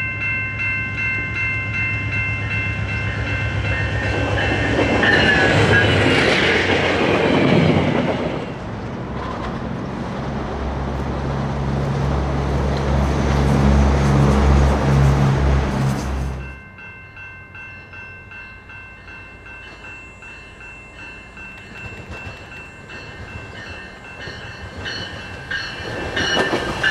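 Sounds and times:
train wheel clatter: 3.7s - 10.0s, 21.4s - 26.9s.

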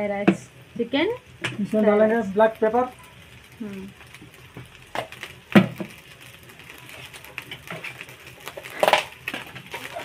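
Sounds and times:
utensils clattering on pot: 6.9s - 10.0s.

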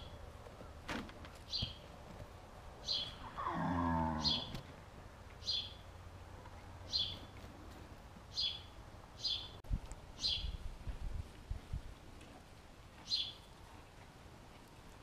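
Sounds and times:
bird chirping: 1.4s - 1.9s, 2.8s - 3.3s, 4.2s - 4.6s, 5.4s - 6.0s, 6.9s - 7.4s, 8.3s - 9.6s, 10.2s - 10.6s, 13.0s - 13.5s
horse low call: 3.2s - 4.6s.

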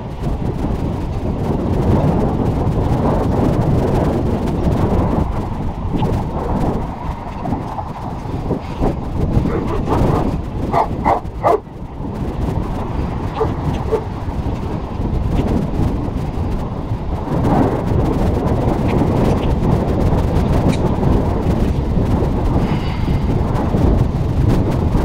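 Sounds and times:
low rumble from moving camera: 0.0s - 25.0s
dog barking: 9.4s - 11.6s, 13.4s - 14.1s.

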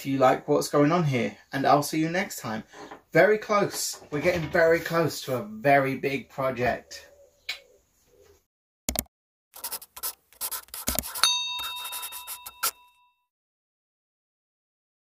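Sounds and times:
bell-like ding: 11.2s - 13.3s.

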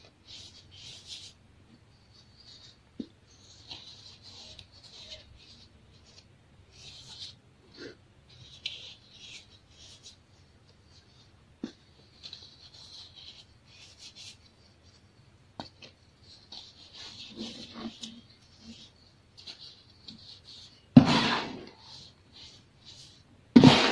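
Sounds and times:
powder sifting hiss: 21.0s - 22.0s.

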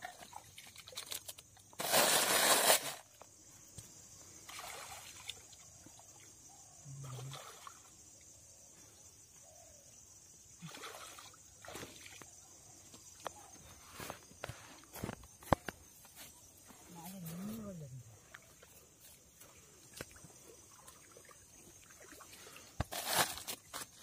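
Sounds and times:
water splashing and sloshing: 0.0s - 1.8s, 4.4s - 6.4s, 7.0s - 8.0s, 10.6s - 12.4s, 18.2s - 24.0s
water trickling: 18.2s - 22.7s.

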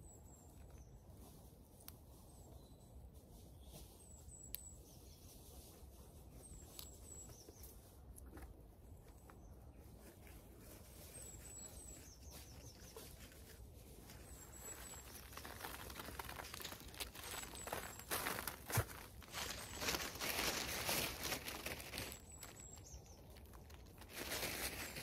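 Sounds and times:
small bird chirping: 2.1s - 8.4s, 9.0s - 25.0s
plants rustling pulled by hand: 10.0s - 25.0s.

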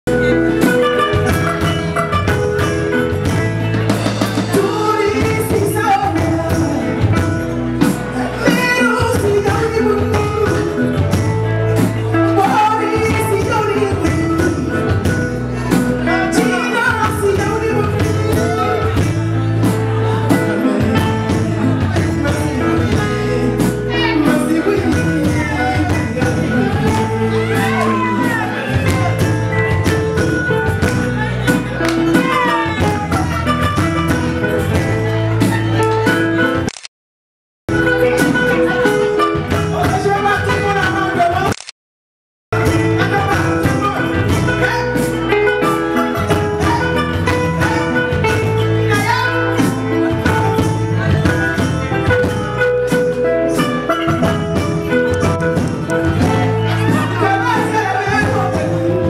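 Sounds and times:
bass line: 0.1s - 36.8s, 37.7s - 41.6s, 42.5s - 59.0s
woman singing: 4.5s - 7.3s, 8.2s - 11.0s, 12.4s - 15.0s, 16.1s - 18.6s, 22.0s - 28.7s.

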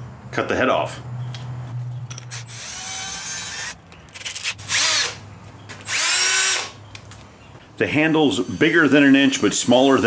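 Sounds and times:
cordless drill spinning: 2.3s - 5.2s, 5.8s - 6.8s.

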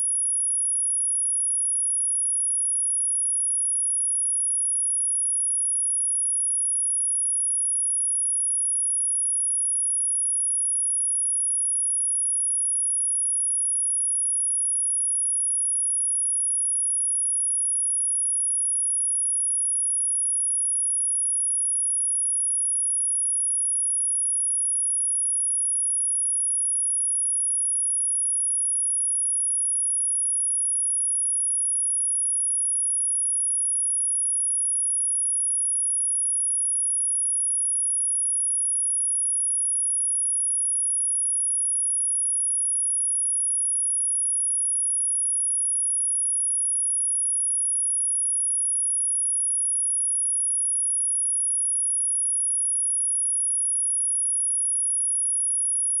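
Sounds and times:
high-pitched sine test tone: 0.0s - 2.0s, 20.0s - 56.0s.

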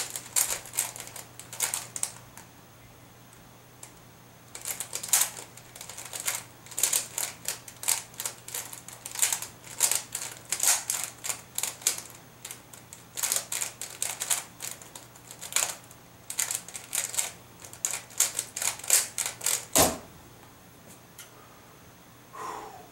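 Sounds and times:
plastic puzzle clicking: 4.5s - 19.7s.

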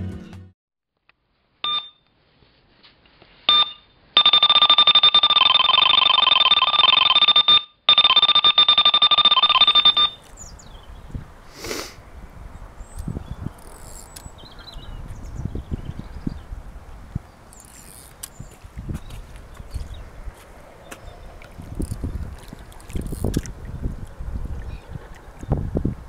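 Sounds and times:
electronic bite alarm beeping: 3.5s - 10.3s.

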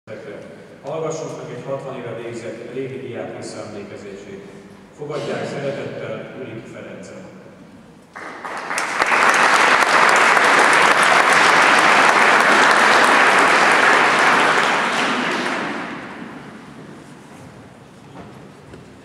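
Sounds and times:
audience applauding: 8.1s - 17.0s.

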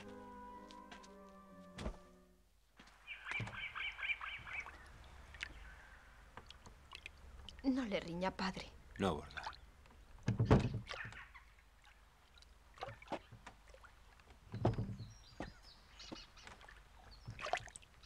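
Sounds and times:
pole and feet knocking boat hull: 14.5s - 16.2s.

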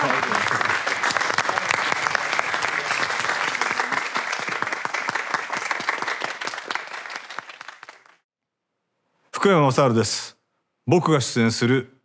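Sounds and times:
crowd applauding: 0.0s - 8.2s.

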